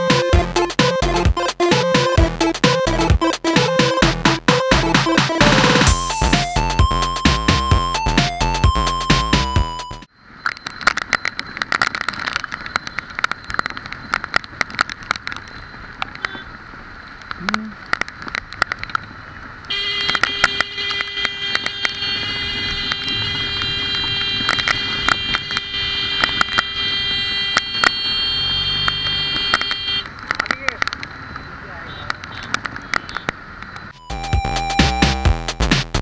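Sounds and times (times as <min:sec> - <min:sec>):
raindrops ticking on camera: 0:10.4 - 0:22.0, 0:22.8 - 0:26.8, 0:28.8 - 0:33.9
high-pitched buzzing tone: 0:24.4 - 0:30.1.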